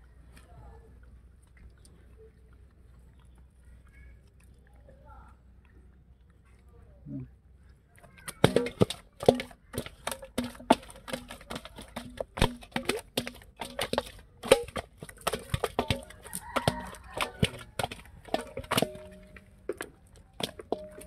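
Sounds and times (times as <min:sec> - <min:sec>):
fish slapping metal bowl: 0:08.2 - 0:21.0.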